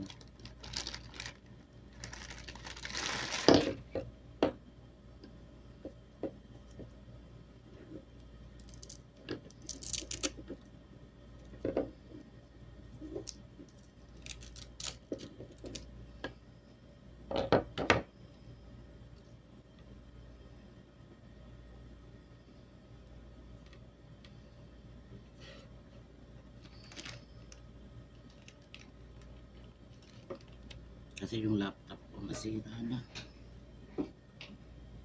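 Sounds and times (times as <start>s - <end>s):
plastic packaging crinkling: 0.0s - 3.8s, 8.6s - 10.4s, 14.1s - 15.8s, 26.7s - 27.6s, 28.2s - 30.8s.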